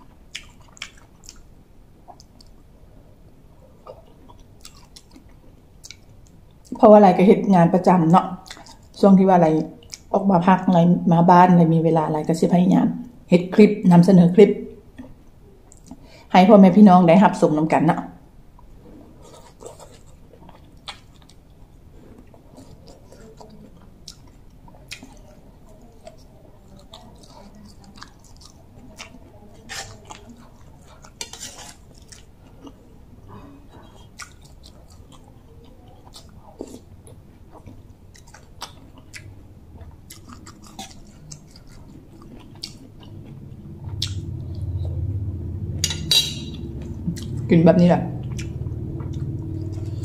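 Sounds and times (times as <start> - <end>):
person chewing food: 0.0 - 2.7, 3.6 - 6.8, 8.4 - 9.0, 14.9 - 16.1, 18.6 - 47.4, 48.2 - 50.0.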